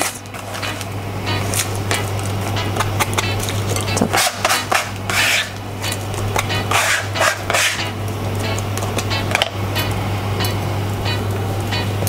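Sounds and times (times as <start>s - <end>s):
low hum: 0.0s - 12.0s
plastic scraper rubbing basket: 4.0s - 5.6s, 6.7s - 7.9s.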